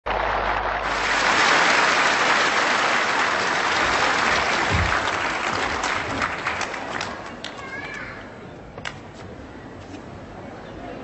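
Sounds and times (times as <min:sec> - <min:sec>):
audience applauding: 0:00.1 - 0:07.9.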